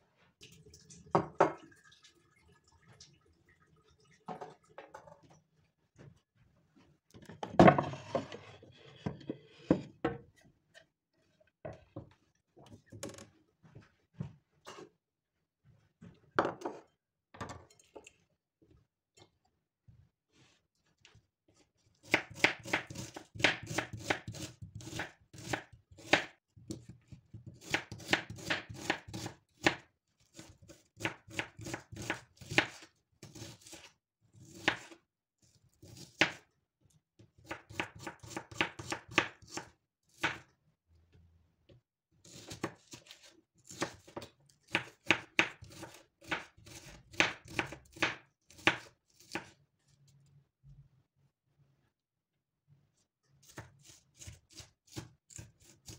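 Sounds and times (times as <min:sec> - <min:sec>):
knife chopping on cutting board: 0:22.0 - 0:26.9, 0:27.6 - 0:29.8, 0:30.4 - 0:33.9, 0:34.5 - 0:34.9, 0:37.4 - 0:40.4, 0:42.3 - 0:49.5, 0:53.4 - 0:55.9.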